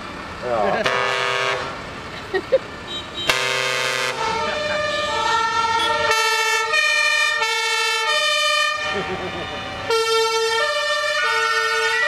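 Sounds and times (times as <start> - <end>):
two-tone fire engine siren: 3.2 - 12.0.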